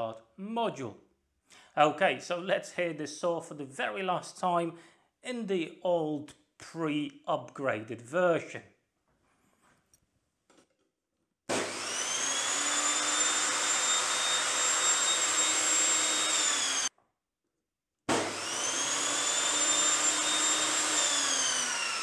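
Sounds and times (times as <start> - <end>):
table saw motor whine: 11.5 - 16.9, 18.1 - 22.0
saw blade spinning down: 11.6 - 16.9, 18.1 - 22.0.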